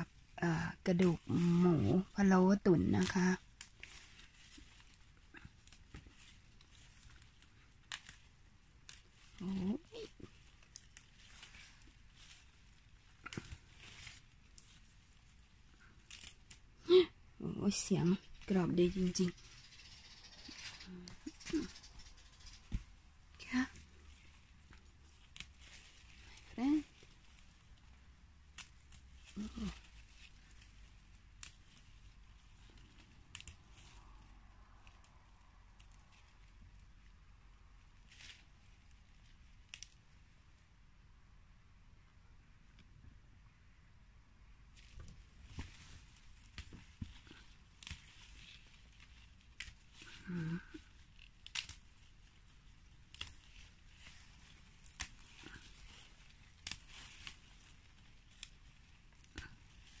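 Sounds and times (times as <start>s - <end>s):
vegetable stems snapping: 0.0s - 40.3s, 44.7s - 60.0s.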